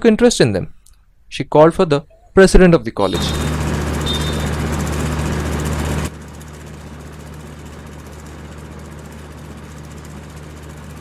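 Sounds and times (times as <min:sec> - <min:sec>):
ceiling fan humming: 0:03.0 - 0:11.0.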